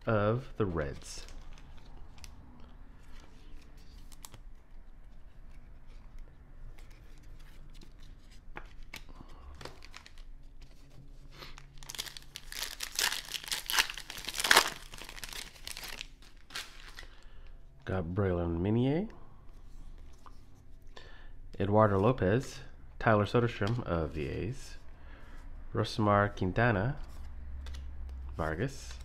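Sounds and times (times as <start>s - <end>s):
foil pack tearing and crinkling: 11.6s - 17.0s.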